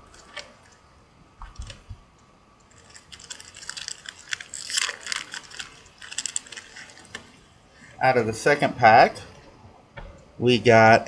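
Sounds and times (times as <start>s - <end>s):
wrapper crinkling and tearing: 2.7s - 7.4s.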